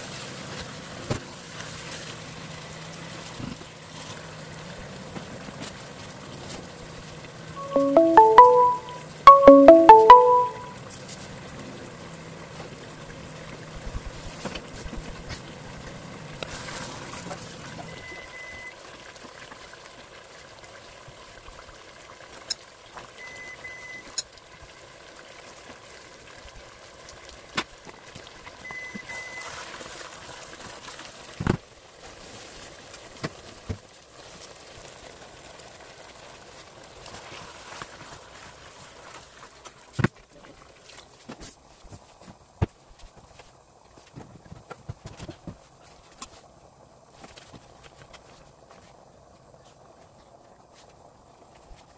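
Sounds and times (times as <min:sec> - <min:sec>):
sauce sizzling in a pot: 0:24.2 - 0:40.0.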